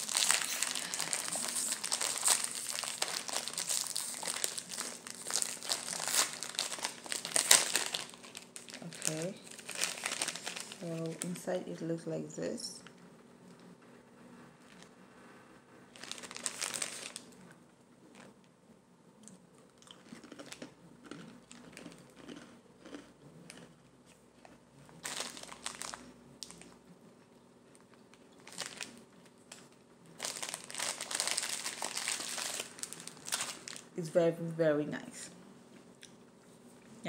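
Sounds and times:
foil wrapper crinkling: 0:00.0 - 0:11.5, 0:15.9 - 0:17.4, 0:25.0 - 0:26.8, 0:27.7 - 0:33.9.

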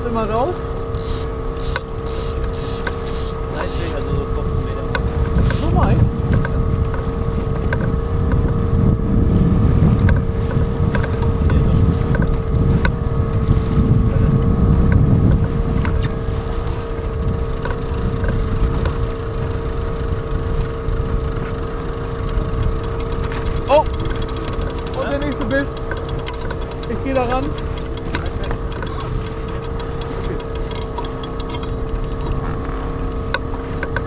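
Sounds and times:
outboard motor running: 0:00.0 - 0:34.0
wind buffeting microphone: 0:00.0 - 0:34.0
faint clicks: 0:01.0 - 0:04.0, 0:22.2 - 0:34.0.

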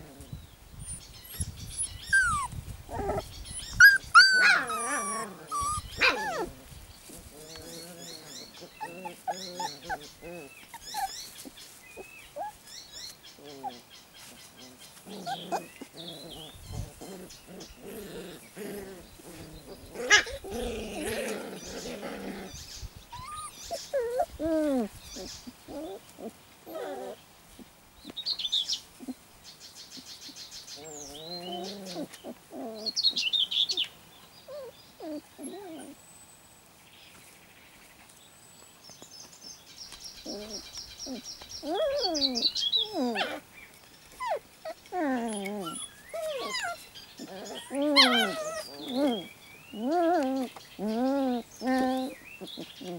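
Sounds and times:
birds chirping and trilling: 0:00.0 - 0:27.2, 0:28.0 - 0:52.9
puppies yipping and whining: 0:00.8 - 0:27.7, 0:34.5 - 0:36.0, 0:40.2 - 0:52.9
scuffling in grass: 0:02.1 - 0:29.2.

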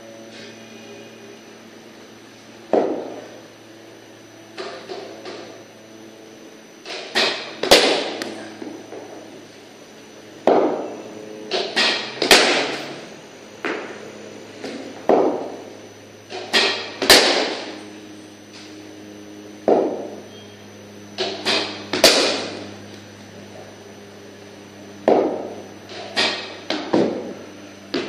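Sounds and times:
cricket bat striking ball: 0:02.7 - 0:03.2, 0:10.4 - 0:10.9, 0:11.6 - 0:12.8, 0:14.6 - 0:15.6, 0:16.6 - 0:17.8, 0:19.6 - 0:20.2, 0:21.2 - 0:22.6, 0:25.0 - 0:25.6.

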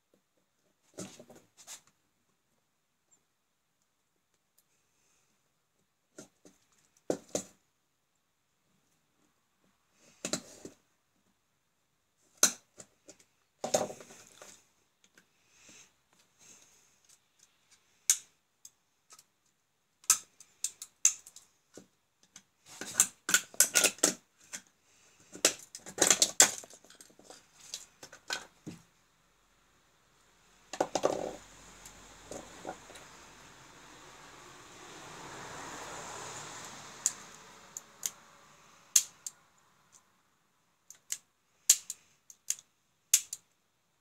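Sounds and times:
plastic clicks and snaps: 0:38.9 - 0:39.4, 0:40.9 - 0:43.6.

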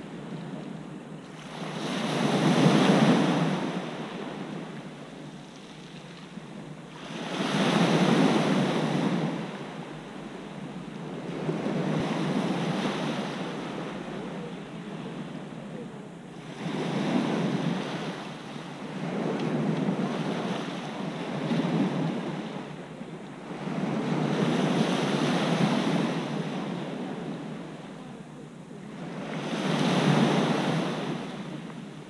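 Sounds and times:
waves breaking on pebble beach: 0:01.3 - 0:09.9, 0:28.9 - 0:32.0.

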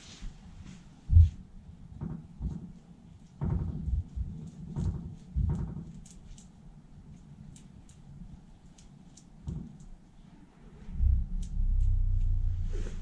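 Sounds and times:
brush dabbing on metal panels: 0:01.8 - 0:10.5.

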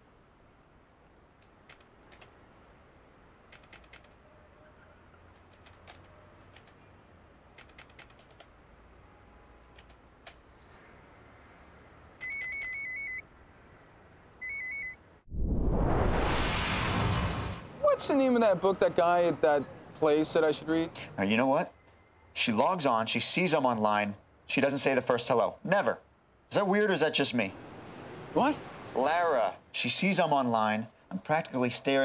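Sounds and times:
keyboard keys clicking: 0:03.5 - 0:04.2, 0:05.3 - 0:06.8, 0:07.6 - 0:08.5, 0:09.7 - 0:10.4.

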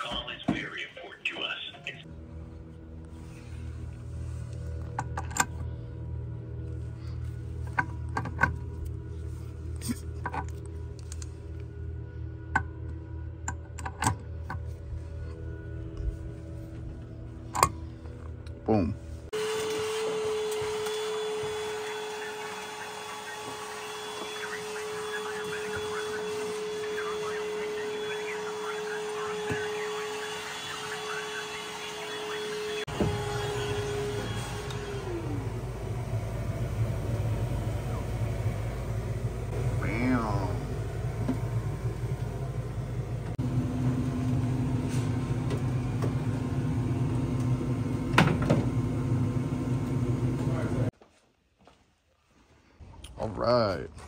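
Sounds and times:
low mechanical hum: 0:02.0 - 0:50.9
small electric motor whine: 0:19.3 - 0:50.9.

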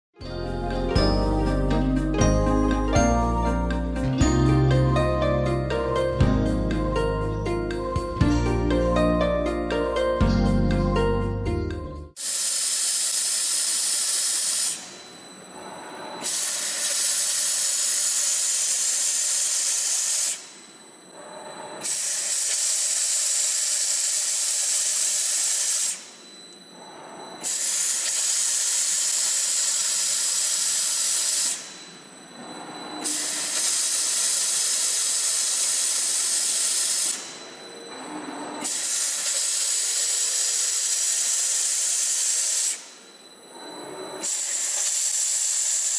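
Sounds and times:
thin high whine: 0:00.2 - 0:45.9
rotating blade cutting hiss: 0:12.2 - 0:14.9, 0:16.2 - 0:20.5, 0:21.8 - 0:26.0, 0:27.4 - 0:31.8, 0:33.0 - 0:37.4, 0:38.6 - 0:42.9, 0:44.2 - 0:45.9.

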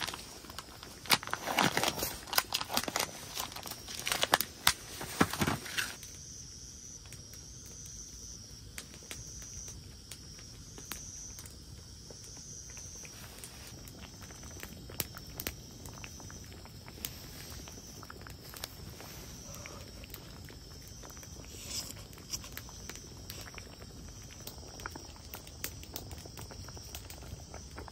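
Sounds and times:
crinkling handling noise: 0:00.0 - 0:06.0, 0:12.9 - 0:27.9
insects chirping: 0:00.0 - 0:27.9.

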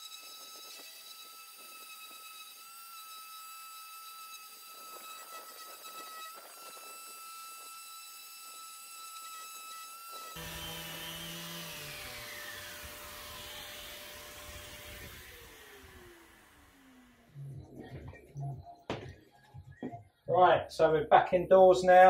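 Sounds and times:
orbital sander whining: 0:00.0 - 0:19.2
background music with low notes: 0:17.3 - 0:21.2.

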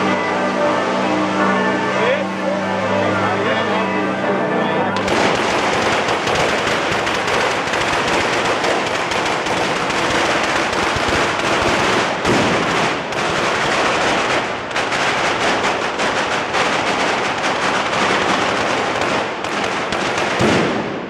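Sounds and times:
firecrackers and fireworks bangs: 0:05.0 - 0:21.0.

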